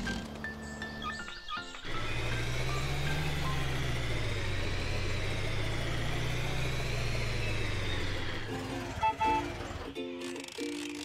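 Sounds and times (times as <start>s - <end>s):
music: 0.0s - 4.0s, 8.5s - 11.0s
cartoon truck engine hum: 0.0s - 11.0s.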